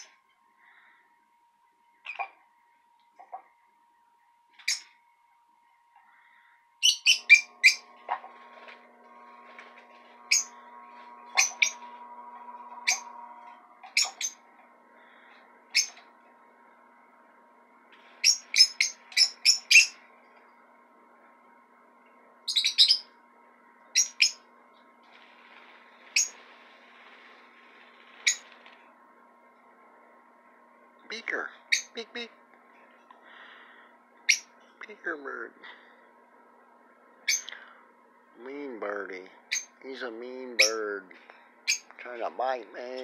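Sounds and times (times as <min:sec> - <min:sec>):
bird chirping: 0:06.8 - 0:07.9, 0:10.2 - 0:14.5, 0:15.7 - 0:16.0, 0:18.2 - 0:20.0, 0:22.5 - 0:23.1.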